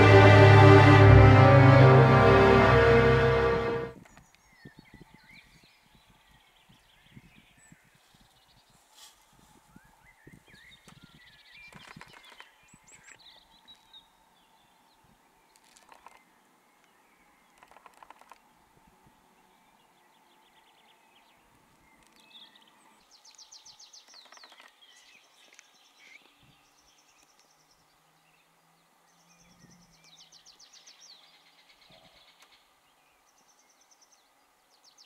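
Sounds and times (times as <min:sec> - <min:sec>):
songbirds trilling and chirping: 0:09.8 - 0:35.0.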